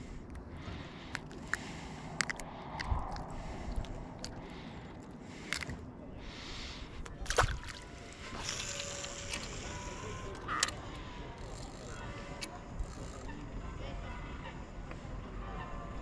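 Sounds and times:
fish splashing into water: 7.2 - 8.0.

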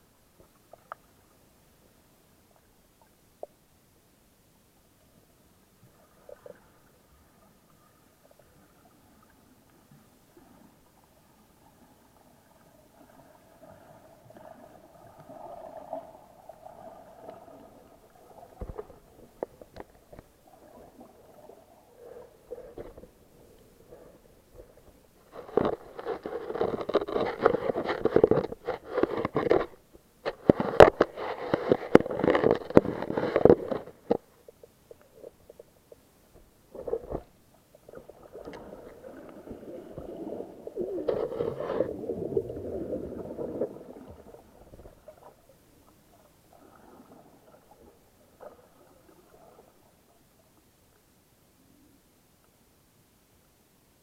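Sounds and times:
muffled underwater rushing: 30.4 - 49.8.

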